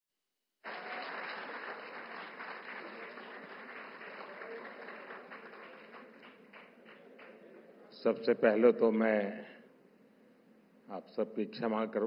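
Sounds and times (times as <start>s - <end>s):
large audience applauding: 0.6s - 7.7s.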